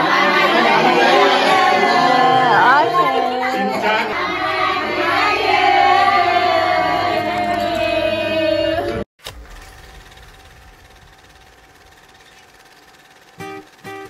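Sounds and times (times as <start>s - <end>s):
group of people cheering: 0.0s - 9.0s.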